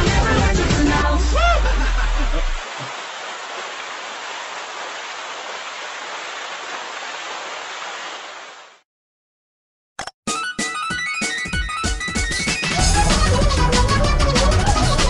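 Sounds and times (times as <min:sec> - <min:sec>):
music: 0:00.0 - 0:02.3, 0:10.3 - 0:15.0.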